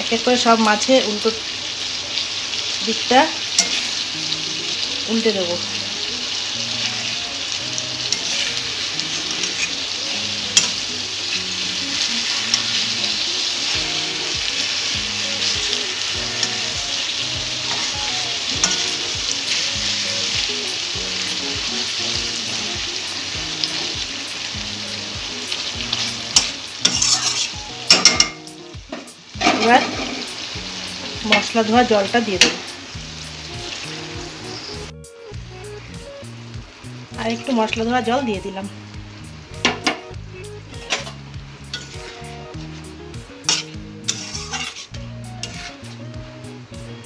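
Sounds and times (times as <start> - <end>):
fish sizzling in oil: 0.0 - 47.0
metal spatula scraping pan: 3.6 - 3.9, 8.1 - 9.8, 17.6 - 18.0, 18.6 - 19.1, 26.3 - 30.4, 40.8 - 46.0.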